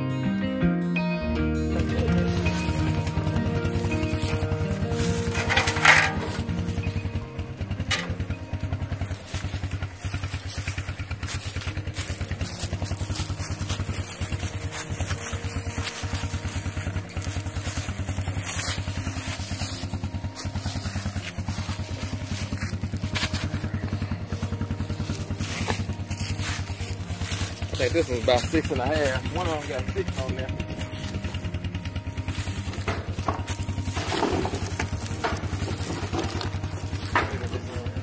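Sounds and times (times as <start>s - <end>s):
wooden poles knocking and scraping: 1.8s - 23.8s, 32.1s - 38.0s
atv engine idling: 1.8s - 38.0s.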